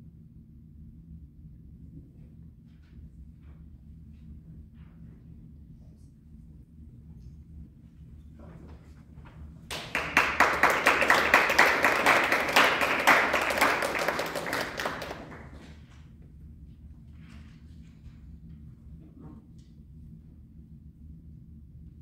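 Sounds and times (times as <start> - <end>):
audience applauding: 9.7 - 15.9.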